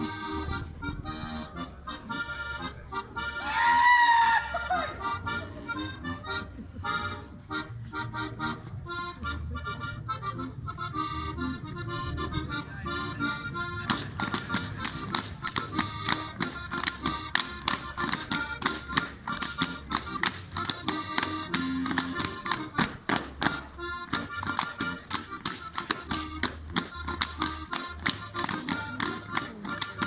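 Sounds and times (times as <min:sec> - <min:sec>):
accordion folk-dance tune: 0:00.0 - 0:30.0
dancers slapping clapping and stamping: 0:13.9 - 0:30.0.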